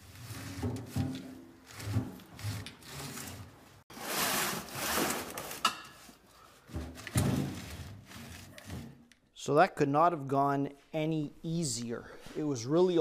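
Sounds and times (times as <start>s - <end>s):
metal tank scraping on concrete: 0.0s - 6.0s, 6.7s - 9.0s.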